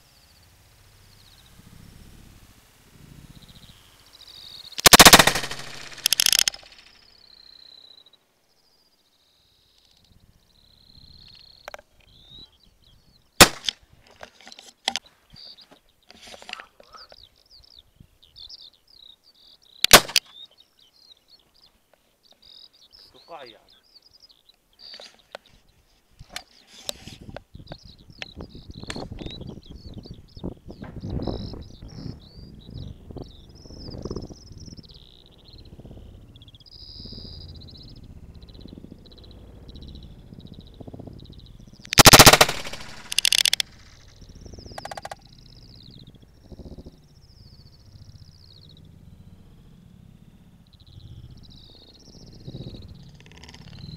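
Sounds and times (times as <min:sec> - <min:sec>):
small birds chirping: 0:00.0 - 0:53.9
rifle shot: 0:04.8 - 0:06.8, 0:13.4 - 0:13.7, 0:19.9 - 0:20.2, 0:41.9 - 0:43.8.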